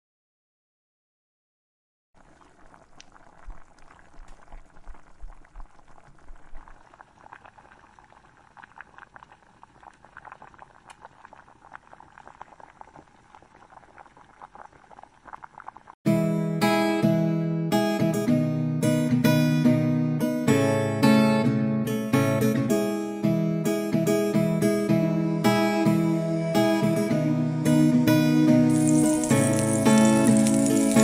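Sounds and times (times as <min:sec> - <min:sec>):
strummed acoustic guitar tune: 0:16.1 - 0:31.0
mushrooms sizzling in a frying pan: 0:28.7 - 0:31.0.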